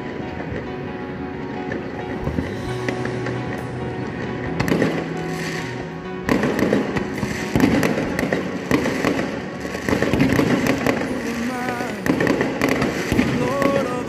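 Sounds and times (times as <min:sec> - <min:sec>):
fireworks bangs and crackling: 0:02.2 - 0:05.7, 0:06.3 - 0:14.0.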